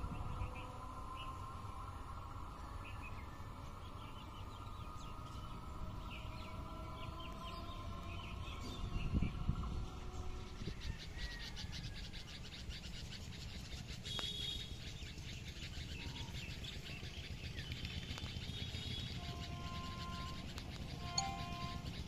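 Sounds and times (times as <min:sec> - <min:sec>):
birds chirping: 0:02.8 - 0:22.0.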